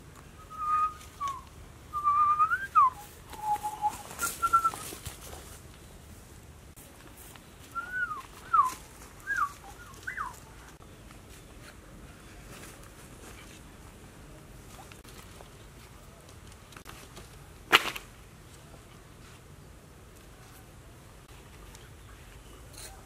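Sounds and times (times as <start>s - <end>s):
short whistled notes: 0.4s - 5.0s, 7.7s - 10.4s.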